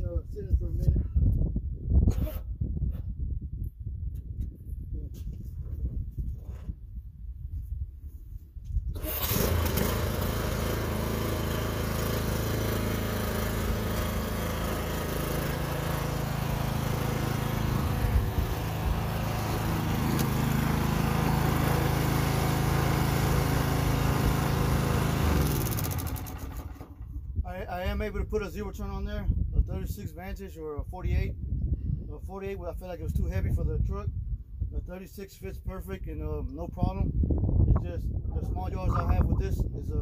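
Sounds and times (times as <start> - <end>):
lawn mower engine running: 8.9 - 27.4.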